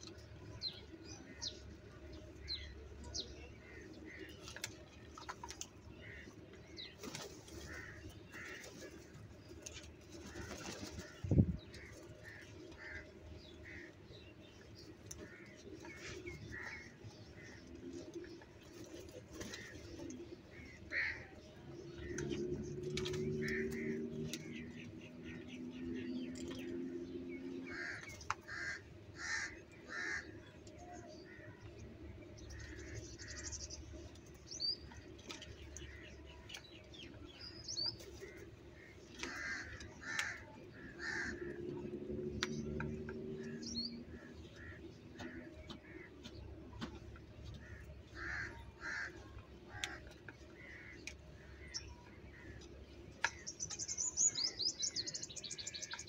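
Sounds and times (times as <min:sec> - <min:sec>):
crows cawing: 0:20.6 - 0:21.3, 0:27.7 - 0:30.4, 0:39.2 - 0:41.6, 0:47.6 - 0:50.0.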